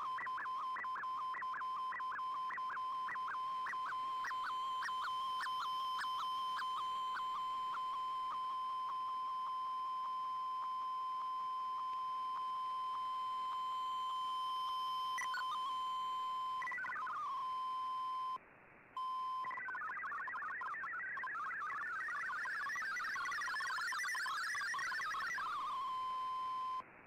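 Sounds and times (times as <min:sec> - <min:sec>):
high steady whistle: 0:00.0 - 0:18.4, 0:19.0 - 0:26.8
warbling multi-tone data signal: 0:00.0 - 0:18.4, 0:19.0 - 0:26.8
steady radio tone with faint ticks: 0:00.0 - 0:27.0.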